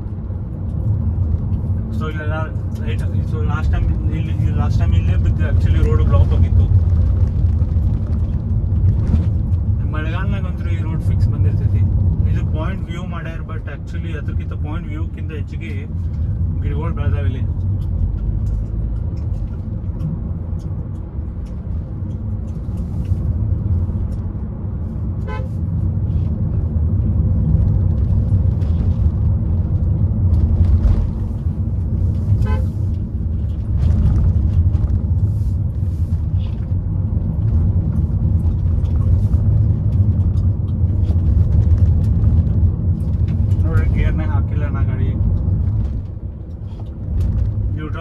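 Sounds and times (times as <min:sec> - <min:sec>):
car engine and tyre rumble: 0:00.0 - 0:48.0
car horn toots: 0:25.2 - 0:25.6, 0:32.4 - 0:32.8.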